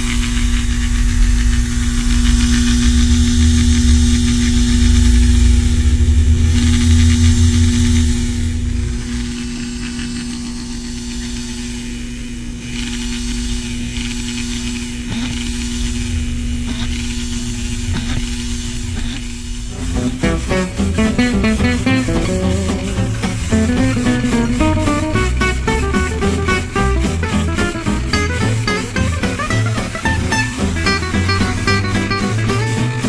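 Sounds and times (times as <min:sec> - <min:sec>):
electric motor humming: 0:00.0 - 0:33.0.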